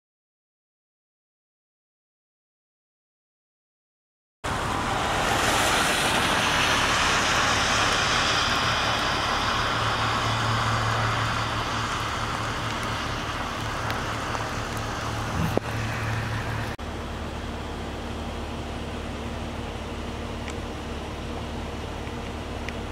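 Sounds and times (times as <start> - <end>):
heavy rain hissing: 4.5 - 16.8.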